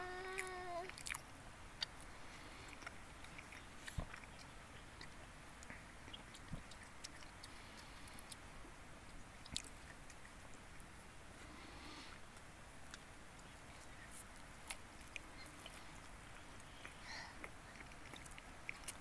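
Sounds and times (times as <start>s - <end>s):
child chewing food: 0.0s - 19.0s
mouth clicks and smacks: 9.4s - 10.6s.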